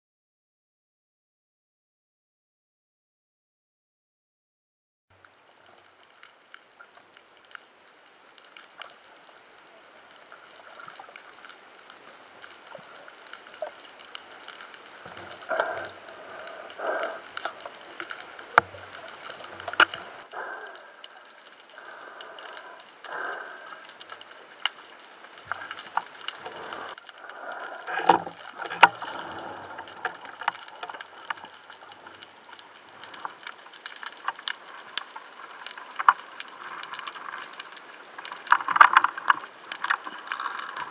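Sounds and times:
water swishing: 5.4 - 40.9
sharp underwater clicks and knocks: 5.7 - 40.9
underwater hiss: 9.6 - 32.2.

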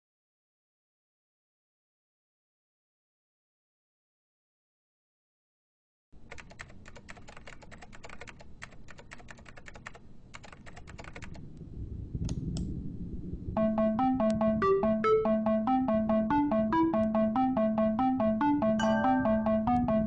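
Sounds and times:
laptop keyboard typing: 6.2 - 11.4
electronic keyboard melody: 13.6 - 20.0.

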